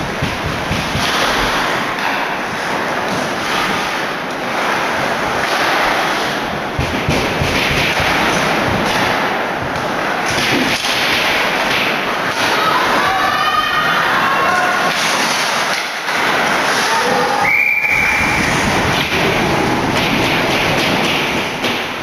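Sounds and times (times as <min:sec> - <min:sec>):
crowd cheering and yelling: 0:12.4 - 0:15.0, 0:16.7 - 0:18.7.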